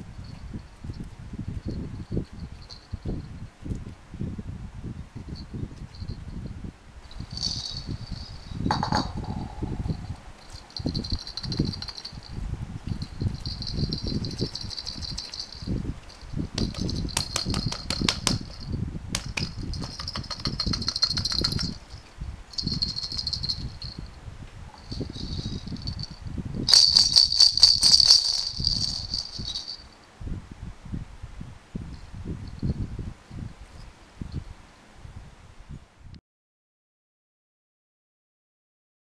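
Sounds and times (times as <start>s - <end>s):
plastic balls rattling inside toy: 7.2s - 9.5s, 10.4s - 12.3s, 13.0s - 24.0s, 24.8s - 29.9s.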